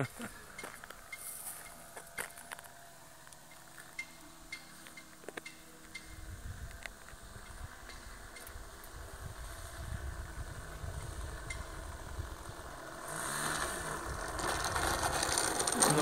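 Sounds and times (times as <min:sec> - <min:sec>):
model airplane engine: 0:00.0 - 0:16.0
wind rumble on microphone: 0:06.1 - 0:12.8.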